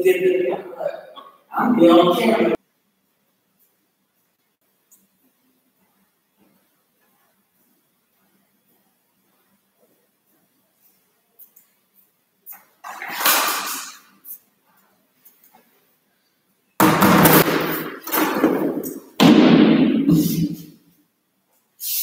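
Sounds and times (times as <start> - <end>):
plastic platforms knocking and rattling: 16.8 - 20.5
loud ringing impacts: 16.8 - 20.6.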